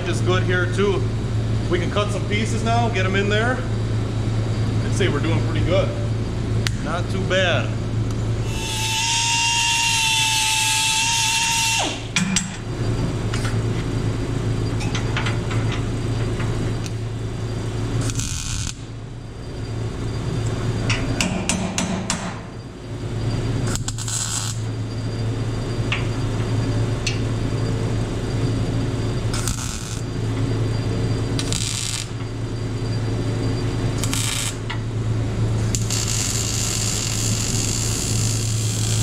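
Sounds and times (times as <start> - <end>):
steady low hum: 0.0 - 39.0
crackling welding bursts: 17.9 - 19.0, 23.6 - 24.7, 29.3 - 30.1, 31.4 - 32.2, 33.9 - 34.7, 35.6 - 39.0.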